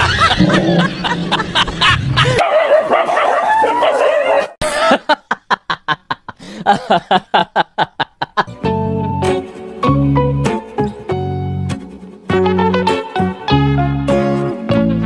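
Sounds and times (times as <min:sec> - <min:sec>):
dog yipping: 0:02.4 - 0:04.6.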